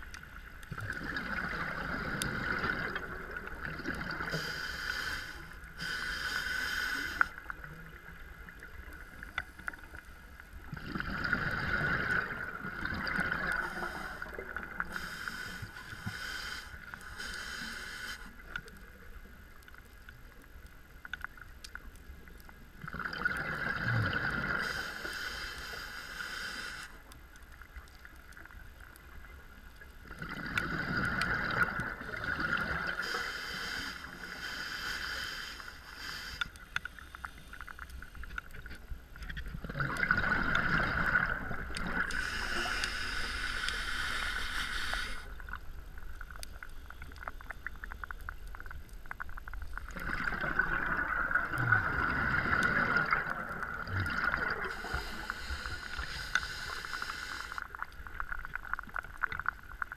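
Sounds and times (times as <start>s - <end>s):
regulator breathing bubbles: 50.0s - 57.6s.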